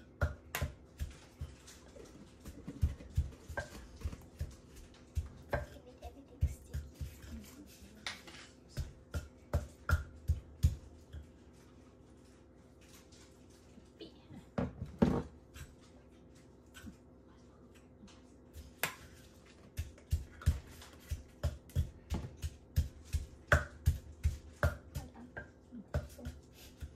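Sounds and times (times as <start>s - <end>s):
pestle pounding in clay mortar: 0.0s - 11.6s, 18.5s - 26.9s.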